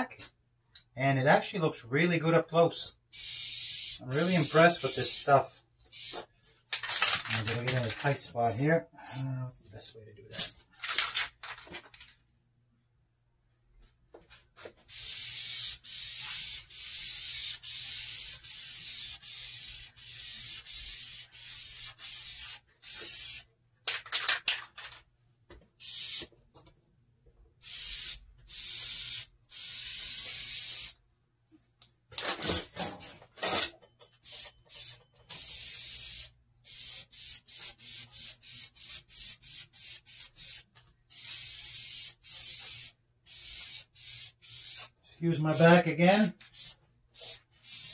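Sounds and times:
aerosol can spraying: 3.2s - 5.3s, 5.9s - 6.3s, 14.9s - 23.4s, 25.8s - 26.3s, 27.6s - 31.0s, 34.2s - 47.9s.

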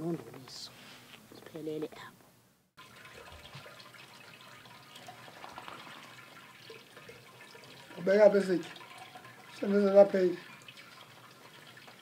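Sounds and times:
thick liquid trickling and dripping: 2.8s - 12.0s.

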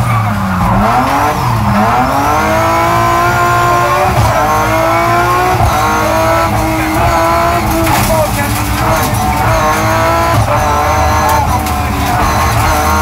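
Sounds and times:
car engine accelerating hard: 0.0s - 13.0s.

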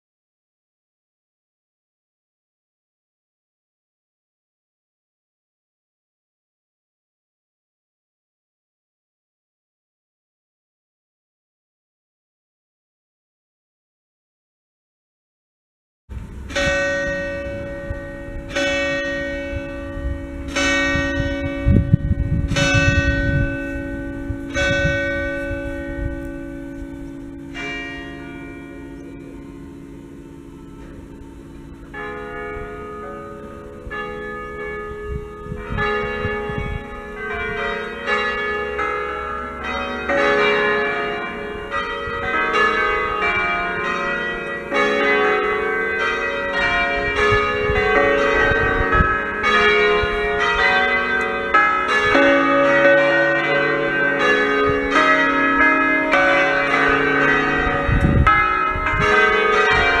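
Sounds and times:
church bells ringing: 16.1s - 60.0s.

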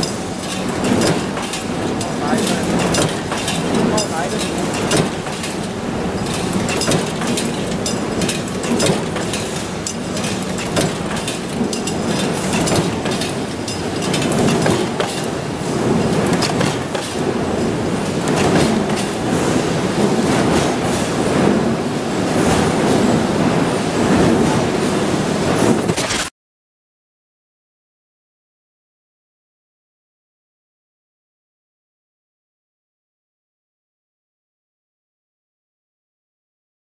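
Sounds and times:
machinery din: 0.0s - 21.0s.

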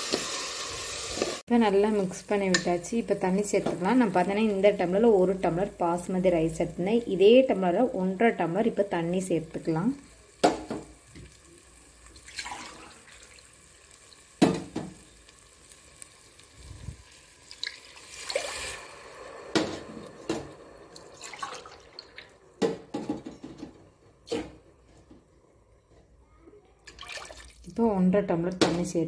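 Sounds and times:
water pouring and splashing: 12.0s - 22.4s, 26.8s - 27.7s
metal knocks on pressure cooker: 14.4s - 15.0s.

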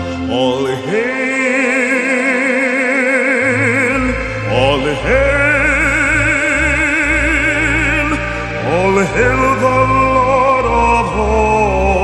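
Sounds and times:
low bass notes: 3.4s - 12.0s.

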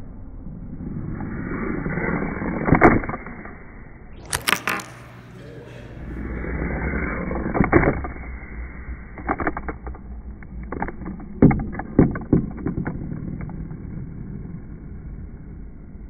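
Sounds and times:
steady low hum: 0.0s - 16.0s
toy skateboard rolling and clattering: 7.2s - 8.3s, 9.1s - 14.6s.

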